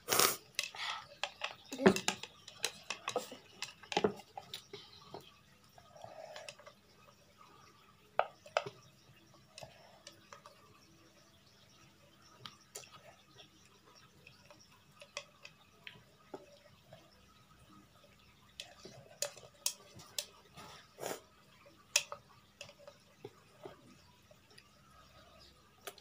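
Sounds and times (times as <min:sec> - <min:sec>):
slurping broth: 0:00.0 - 0:00.6, 0:20.6 - 0:21.3.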